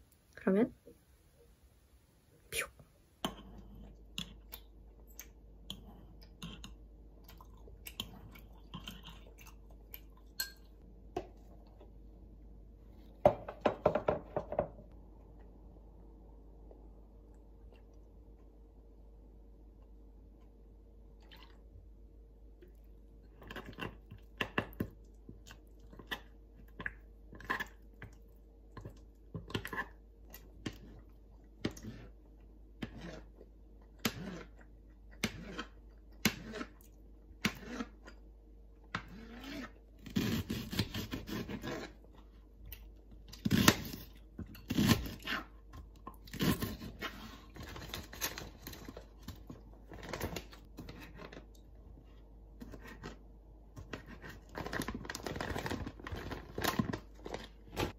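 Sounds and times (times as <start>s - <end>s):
plastic packaging crinkling: 53.9s - 57.9s.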